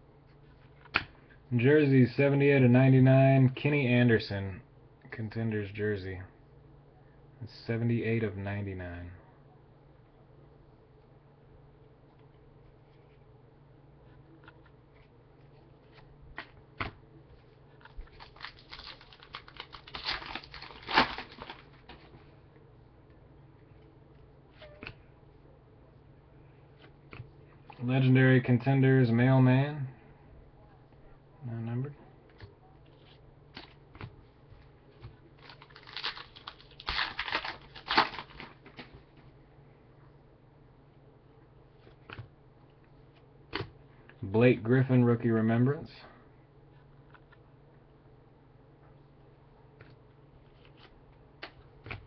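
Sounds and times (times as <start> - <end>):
foil wrapper crinkling: 17.7 - 22.1, 35.3 - 38.9.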